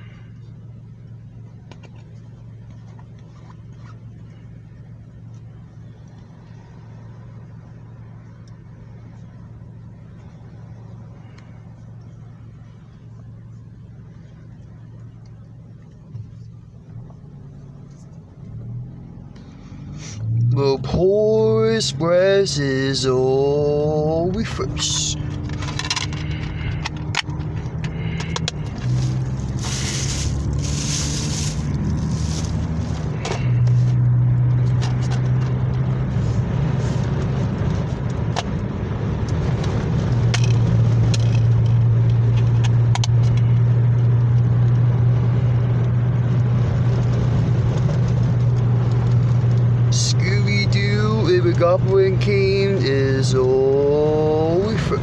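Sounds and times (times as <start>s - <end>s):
car cabin rumble: 0.0s - 55.0s
handling rustle: 24.8s - 34.0s.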